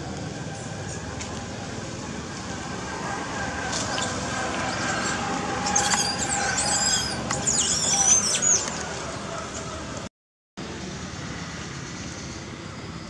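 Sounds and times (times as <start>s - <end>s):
steady outdoor background: 0.0s - 13.0s
high-pitched chirping calls: 3.9s - 8.8s.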